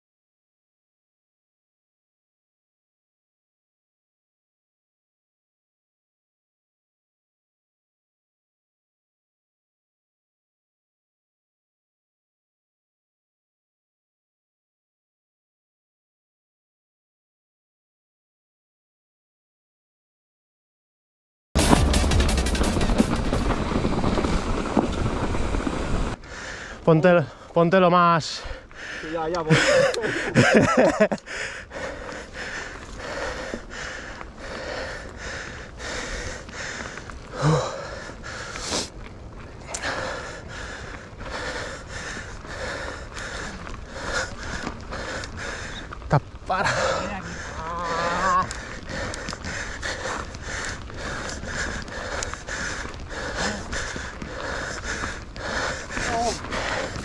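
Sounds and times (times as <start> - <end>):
low rumble: 21.6 - 26.2
person breathing hard: 26.2 - 27.5, 28.4 - 39.0, 39.6 - 57.0
vocal grunt: 46.5 - 48.6
person speaking: 56.0 - 56.4.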